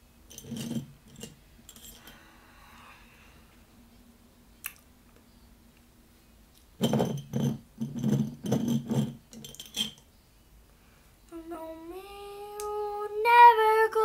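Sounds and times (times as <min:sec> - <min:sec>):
makeup items clinking and clattering: 0:06.8 - 0:10.0.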